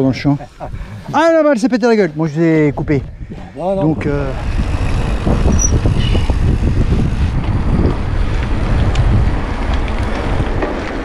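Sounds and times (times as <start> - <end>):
wind buffeting microphone: 0.0 - 11.0
faint bike clicks: 8.3 - 11.0.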